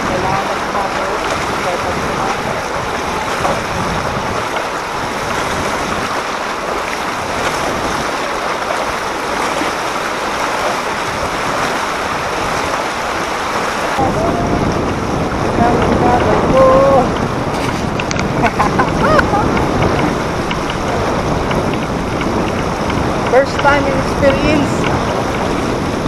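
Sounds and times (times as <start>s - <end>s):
floodwater rushing and splashing: 0.0s - 26.0s
low rumble: 14.0s - 26.0s.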